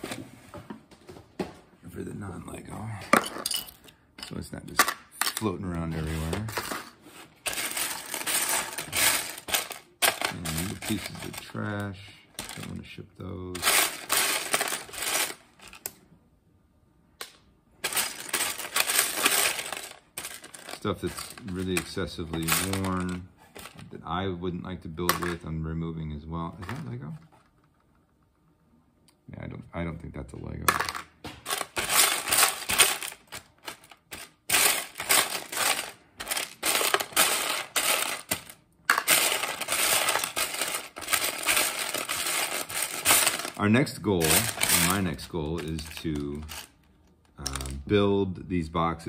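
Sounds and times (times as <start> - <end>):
plastic bricks clattering: 4.7 - 12.8, 13.6 - 15.9, 17.8 - 23.8, 30.7 - 46.8.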